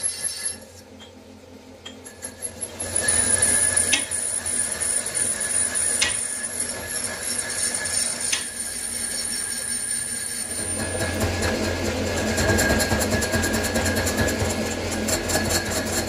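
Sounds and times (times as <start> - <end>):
metal lathe whine: 0.0 - 1.0, 1.9 - 16.0.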